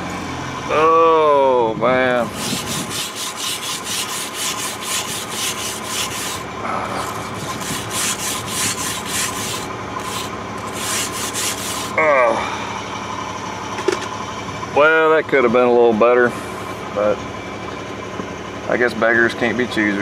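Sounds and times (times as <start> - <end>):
wire brush scrubbing steel: 2.2 - 12.0.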